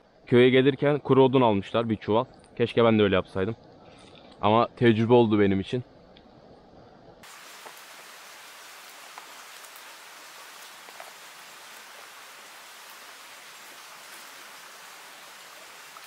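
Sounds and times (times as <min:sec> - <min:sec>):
steady rain hiss: 0:00.0 - 0:16.0
raindrops ticking: 0:07.2 - 0:16.0.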